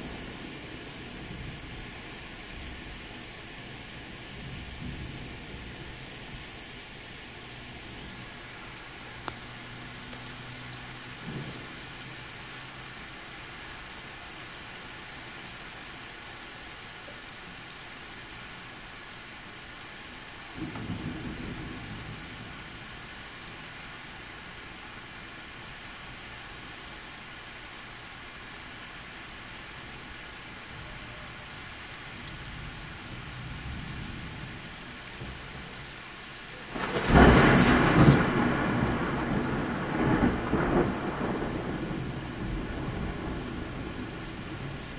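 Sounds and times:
steady rain: 0.0 - 44.9
thunder rumbling: 36.7 - 44.9
loud thunder clap: 36.8 - 43.5.

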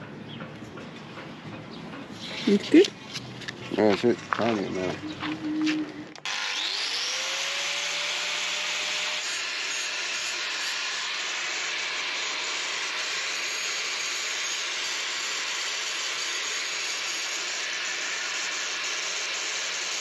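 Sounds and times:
power tool motor whining: 4.5 - 20.0.

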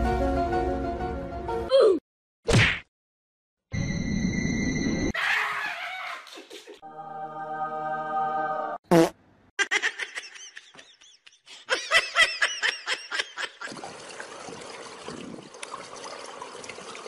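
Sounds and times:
person laughing: 9.6 - 13.8.

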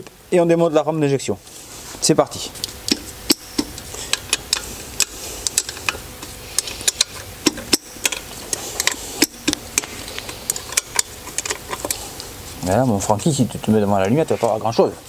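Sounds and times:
hand tool metallic clicks: 6.6 - 11.9.

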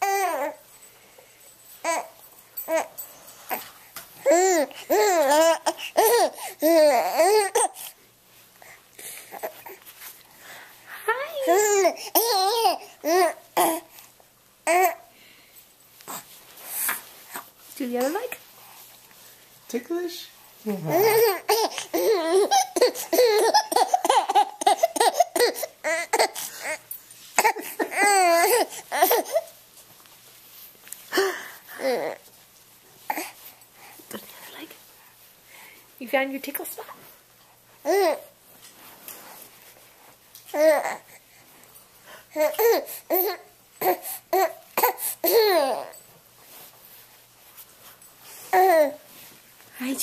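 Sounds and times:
baby laughing: 11.4 - 13.8, 21.0 - 26.4.

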